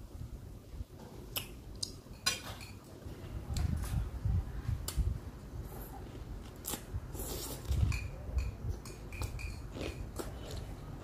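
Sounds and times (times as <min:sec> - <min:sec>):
person chewing raw pepper: 0:06.1 - 0:08.1, 0:08.8 - 0:11.0
sharp food crunches: 0:06.5 - 0:07.8.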